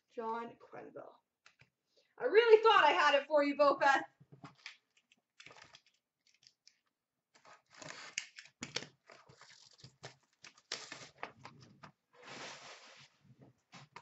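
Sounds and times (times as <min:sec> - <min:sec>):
packaging crinkling and ripping: 0:04.5 - 0:06.8, 0:07.4 - 0:11.6.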